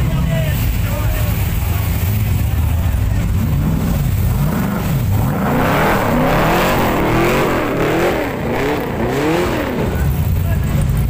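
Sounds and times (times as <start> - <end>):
car engine revving in quick blips: 3.8 - 10.3.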